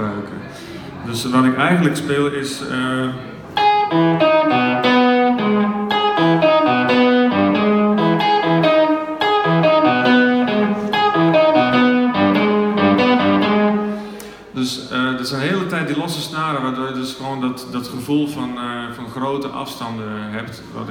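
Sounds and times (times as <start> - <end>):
electric guitar playing single notes: 3.0 - 14.6.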